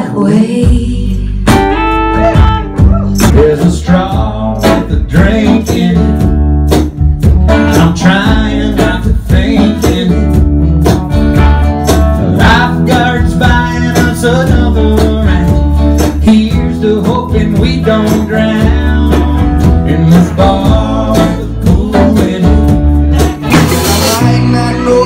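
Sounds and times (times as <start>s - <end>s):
electric guitar band music: 0.0s - 25.0s
live country music: 0.0s - 25.0s
man singing: 2.9s - 6.4s, 7.5s - 10.6s, 12.2s - 25.0s.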